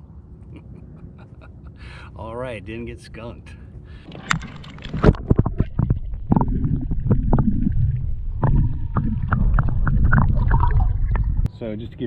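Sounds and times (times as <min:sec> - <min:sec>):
water splashing and sloshing: 0:03.9 - 0:11.5
muffled underwater rumble and gurgle: 0:04.0 - 0:11.5.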